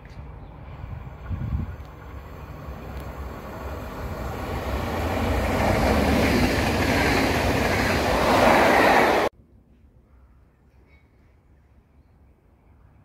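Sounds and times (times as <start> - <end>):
train wheels rumbling on rails: 0.6 - 9.3.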